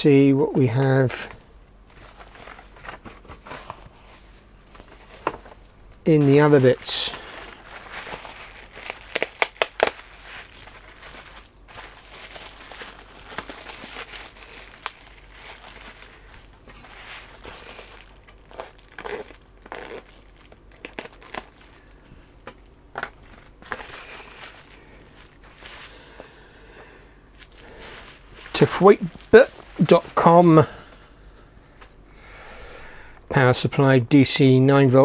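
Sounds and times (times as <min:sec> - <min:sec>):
bubble wrap crinkling: 0:01.8 - 0:31.1
bubble wrap sharp crackles: 0:04.8 - 0:26.3, 0:27.3 - 0:30.6.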